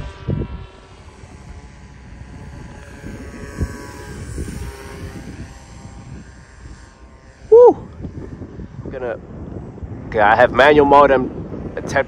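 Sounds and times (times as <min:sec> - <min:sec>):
electric motor whine: 0:00.0 - 0:10.2
wind rumble on microphone: 0:00.0 - 0:12.0.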